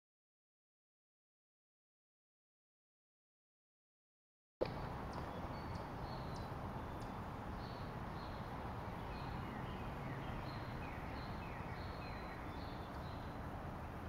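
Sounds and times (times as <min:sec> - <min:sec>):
small birds chirping: 0:04.6 - 0:14.0.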